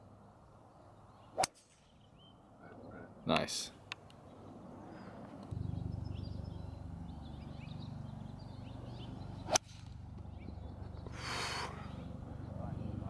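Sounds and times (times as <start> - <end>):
birds chirping: 0.0 - 13.0
low steady hum: 4.2 - 13.0
golf club striking ball: 8.5 - 10.4.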